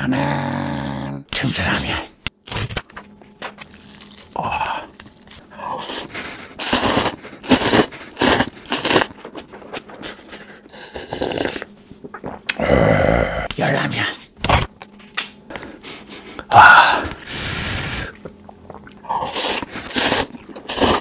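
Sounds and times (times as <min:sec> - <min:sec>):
person gulping broth: 0:03.6 - 0:10.1, 0:10.7 - 0:13.5, 0:16.5 - 0:21.0
person slurping noodles: 0:03.8 - 0:13.5, 0:16.5 - 0:21.0.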